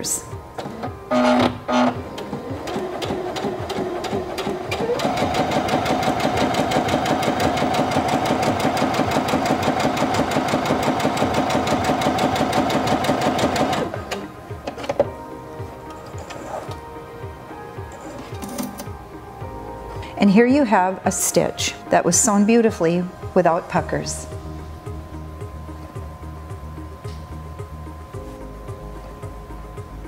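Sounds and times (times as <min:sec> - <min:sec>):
sewing machine stitching: 0:00.8 - 0:14.0.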